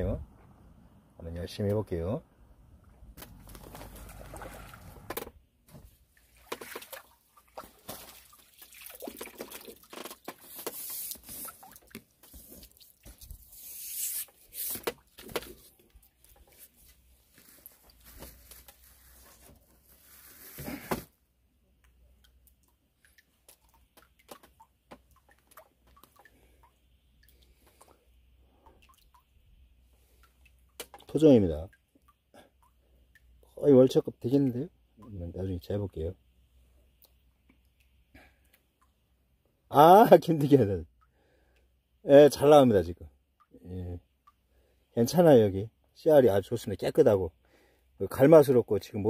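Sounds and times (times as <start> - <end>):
fish splashing and thrashing: 3.2 - 13.6
water dripping: 6.1 - 13.2, 21.8 - 33.6, 37.0 - 39.0, 43.3 - 44.5.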